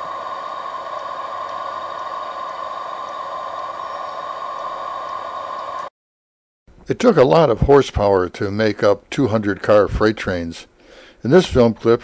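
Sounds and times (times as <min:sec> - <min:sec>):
mid-pitched hum: 0:00.0 - 0:05.9
steady hiss: 0:00.0 - 0:05.9.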